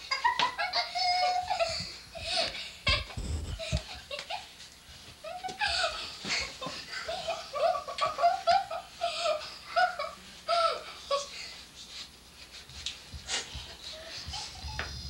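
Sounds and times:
young child giggling: 0:00.0 - 0:04.6, 0:05.2 - 0:11.3, 0:14.0 - 0:15.0.

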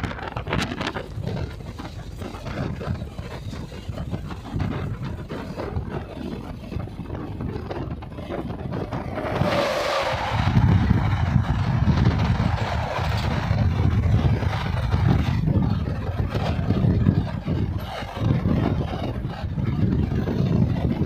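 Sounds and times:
locomotive passing with rush of air: 0:00.0 - 0:21.0
train wheel rumble and wind: 0:00.0 - 0:21.0
freight wagons rumbling by: 0:08.0 - 0:21.0.

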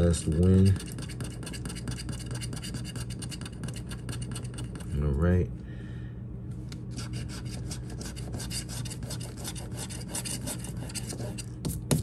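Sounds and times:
card scraping lottery ticket: 0:07.0 - 0:11.8.

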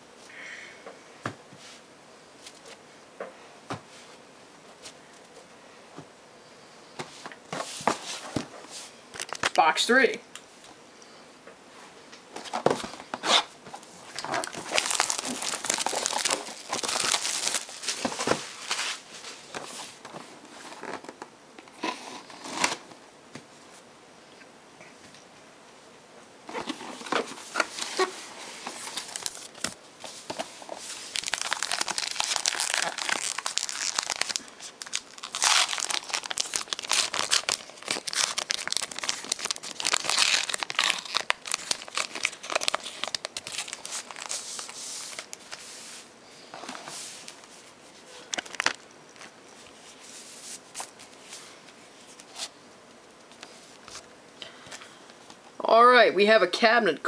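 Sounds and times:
plastic wrapping crinkling and tearing: 0:09.1 - 0:09.6, 0:13.2 - 0:19.0, 0:26.5 - 0:45.6, 0:48.2 - 0:49.3.

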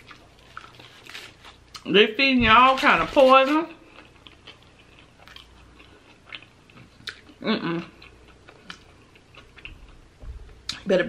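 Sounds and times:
person chewing with wet smacks: 0:00.0 - 0:01.0, 0:03.9 - 0:10.9.

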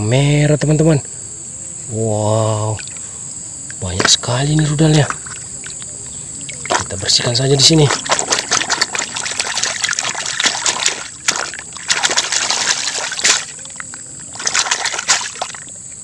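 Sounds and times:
water splashing and sloshing: 0:03.9 - 0:05.8, 0:06.4 - 0:16.0.

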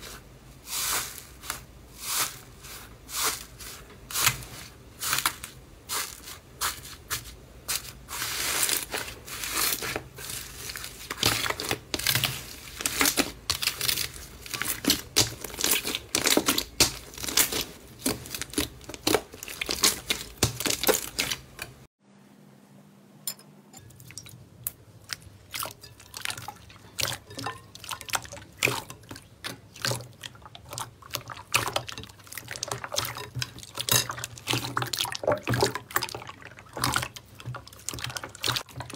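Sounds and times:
slime squelching and popping: 0:08.8 - 0:21.8, 0:24.0 - 0:38.9.

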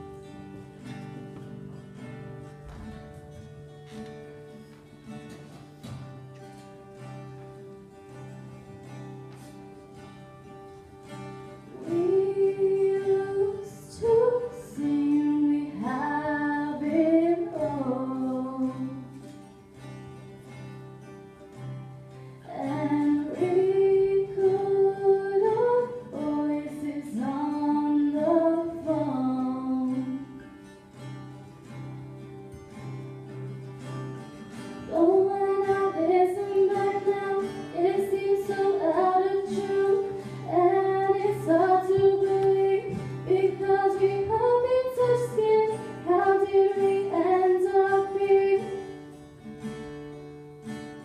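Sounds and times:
acoustic guitar: 0:00.0 - 0:51.0
girls singing: 0:11.6 - 0:19.2, 0:22.4 - 0:30.4, 0:34.8 - 0:49.1.

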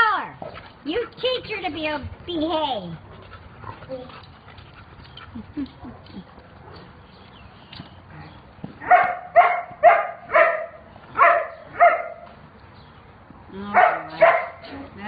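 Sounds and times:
dog barking: 0:08.8 - 0:12.2, 0:13.7 - 0:14.8.

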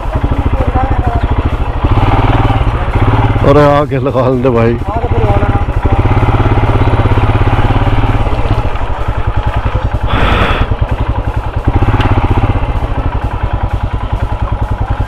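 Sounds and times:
motorcycle engine throbbing: 0:00.0 - 0:15.0.

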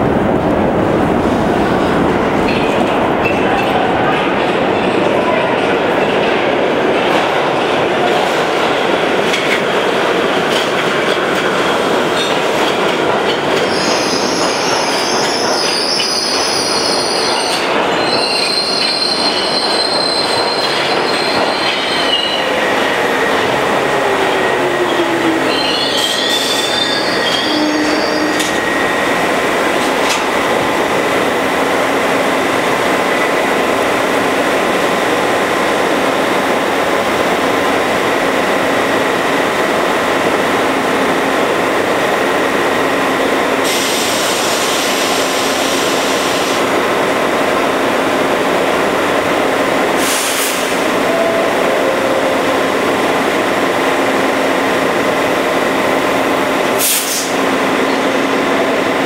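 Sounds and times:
steel wheels rumbling on rail: 0:00.0 - 0:59.0
high wheel squeals: 0:13.6 - 0:22.9, 0:24.2 - 0:29.0.

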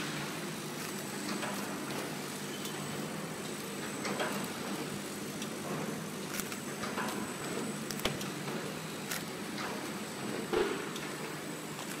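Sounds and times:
mechanism clicks and knocks: 0:07.9 - 0:11.2.

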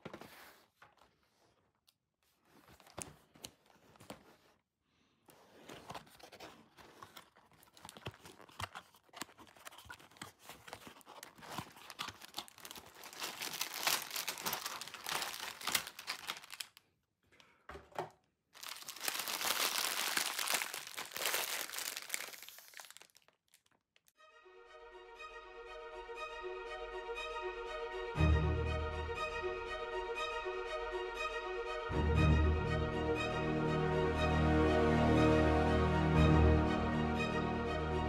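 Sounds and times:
packaging tearing and crinkling: 0:05.8 - 0:16.8, 0:18.6 - 0:24.1.

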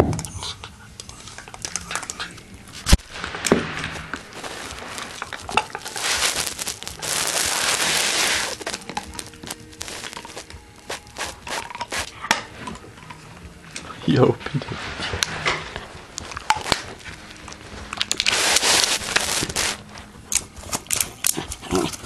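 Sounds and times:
plastic crinkling: 0:02.8 - 0:12.2, 0:15.0 - 0:21.4.

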